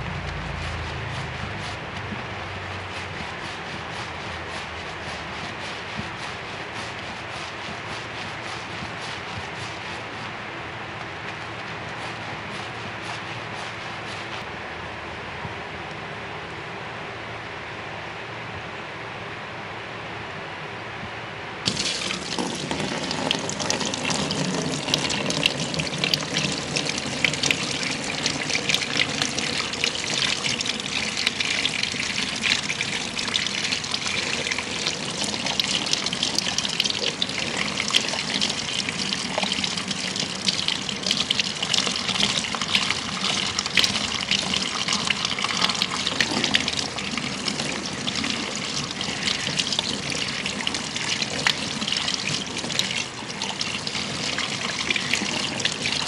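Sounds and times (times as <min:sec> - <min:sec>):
shower sprayer water hissing: 0:21.7 - 0:56.0.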